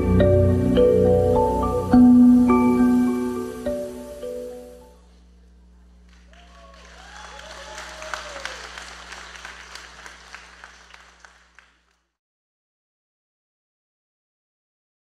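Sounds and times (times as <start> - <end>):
low electrical hum: 0.0 - 12.2
people cheering: 6.1 - 11.8
audience applauding: 6.1 - 12.1.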